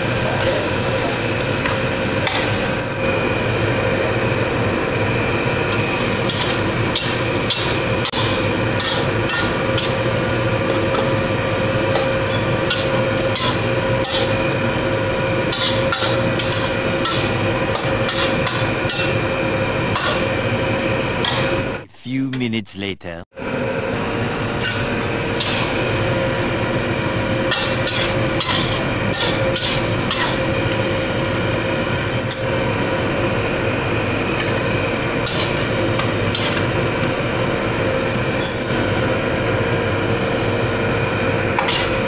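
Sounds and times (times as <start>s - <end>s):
steady hum: 0.0s - 42.0s
metal spatula scraping a wok: 6.0s - 10.1s, 11.9s - 14.8s, 15.4s - 19.2s, 19.9s - 20.3s, 27.5s - 30.5s, 41.6s - 42.0s.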